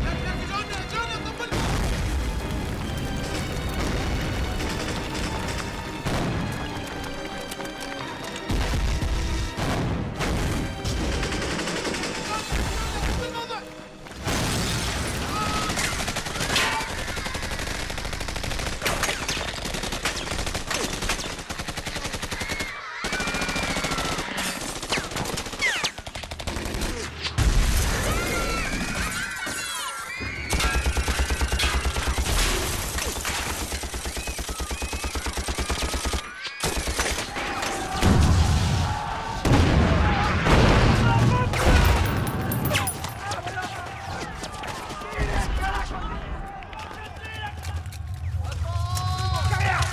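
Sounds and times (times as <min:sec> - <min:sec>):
rapid automatic gunfire: 0:04.3 - 0:05.8, 0:10.8 - 0:12.5, 0:15.4 - 0:27.1, 0:30.5 - 0:37.5.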